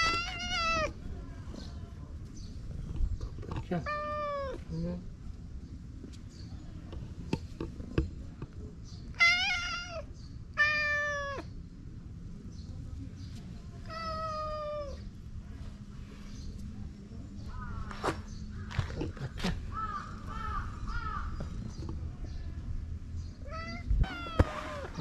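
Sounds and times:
cat meowing: 0.0 - 0.9, 3.8 - 4.6, 9.2 - 11.5, 13.9 - 15.0, 23.4 - 25.0.

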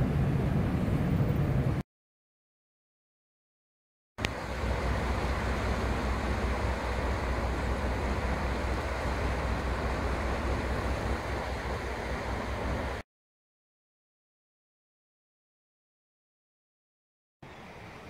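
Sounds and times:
low rumble with hiss: 4.2 - 13.0.

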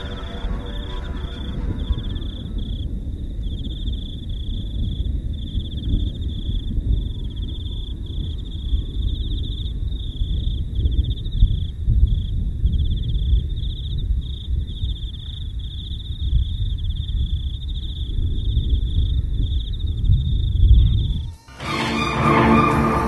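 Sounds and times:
low rumbling noise: 0.0 - 9.5, 20.1 - 23.0
crickets chirping: 0.0 - 23.0.

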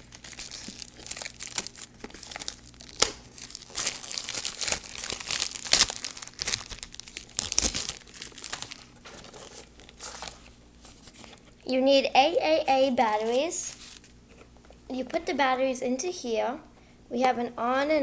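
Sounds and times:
plastic wrap crinkling and tearing: 0.0 - 11.6, 12.9 - 14.2.

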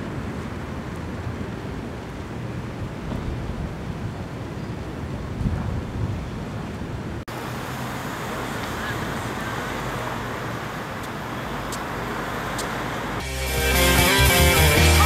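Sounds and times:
distant road traffic: 0.0 - 15.0
rock music with guitar: 13.2 - 15.0.

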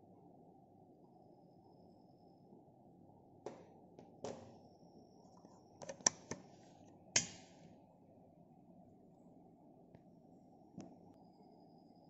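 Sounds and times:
sharp cable cutting clicks: 7.2 - 7.5.

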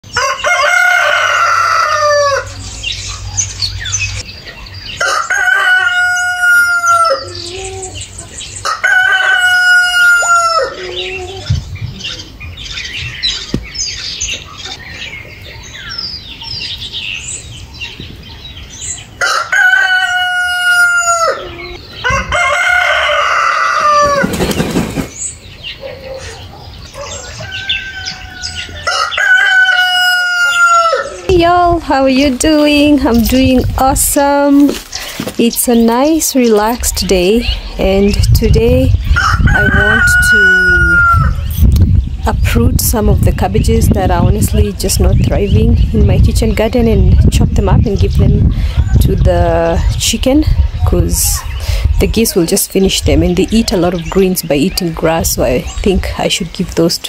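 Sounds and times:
rooster crowing: 0.1 - 2.6, 5.0 - 7.6, 8.6 - 11.3, 19.2 - 24.2, 27.0 - 31.3, 39.2 - 41.4
small birds chirping: 2.2 - 5.5, 7.0 - 8.8, 10.5 - 19.3, 23.9 - 29.6, 30.4 - 57.0
goose flapping wings: 24.1 - 25.2.

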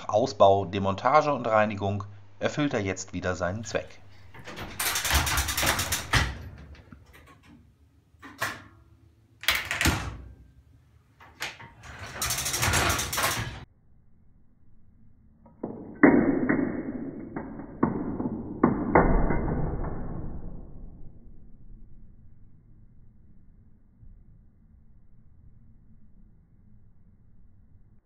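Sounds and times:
metal clattering and rattling: 3.8 - 7.6, 11.2 - 13.7.

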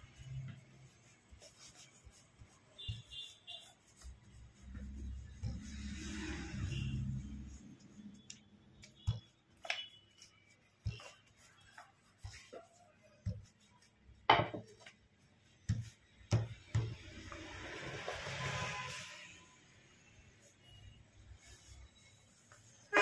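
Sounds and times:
knocks and taps: 15.6 - 17.5.

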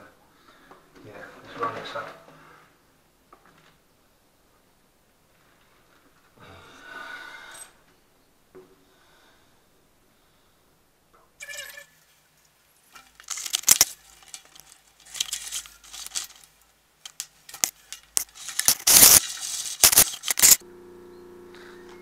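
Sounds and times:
cable and gear rustling and clattering: 12.8 - 20.6
sump pump humming: 20.3 - 22.0.

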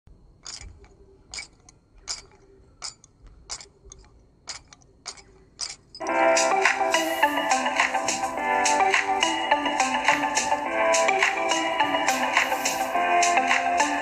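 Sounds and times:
background music: 6.0 - 14.0.

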